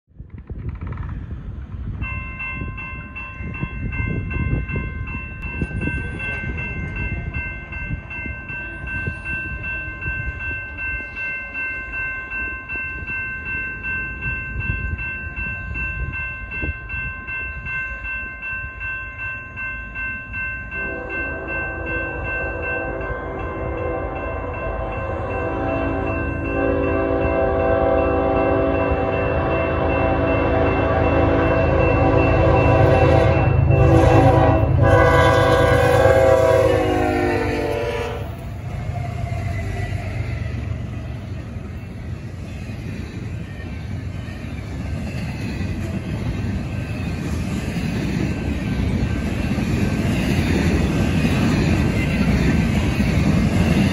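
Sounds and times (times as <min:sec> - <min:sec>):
wind gusting on microphone: 0:00.1 - 0:11.1, 0:23.0 - 0:53.9
distant locomotive air horn: 0:20.8 - 0:40.0.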